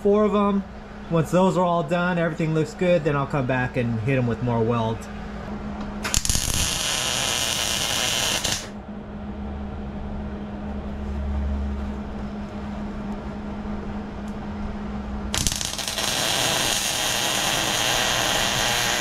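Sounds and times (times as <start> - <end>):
steady low hum: 0.0 - 19.0
welder arc crackling hiss: 6.0 - 8.7, 15.3 - 19.0.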